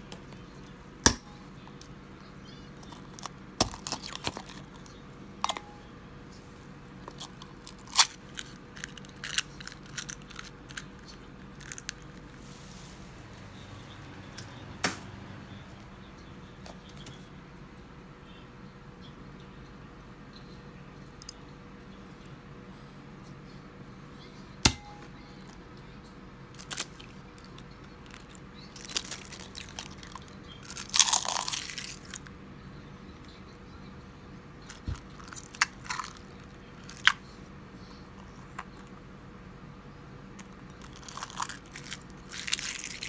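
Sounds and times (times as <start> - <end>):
eggshells crunching: 2.7 - 5.6, 7.0 - 12.4, 26.6 - 32.3, 34.6 - 37.2, 40.4 - 43.0.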